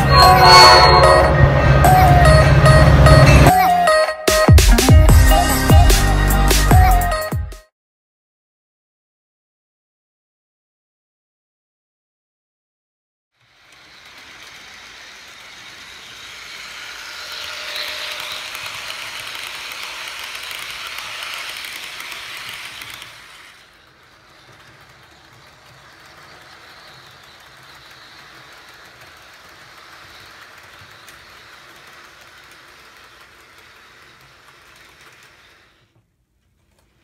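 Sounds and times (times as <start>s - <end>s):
model train cars rumbling: 13.4s - 36.0s.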